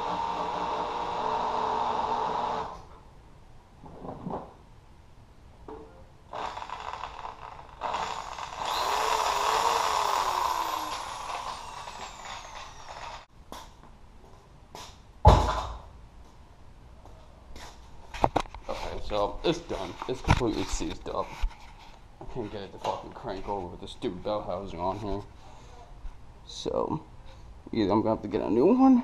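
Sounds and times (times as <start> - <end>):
electric drill straining: 0.0 - 2.9, 6.3 - 13.3
loud thump: 15.2 - 15.9.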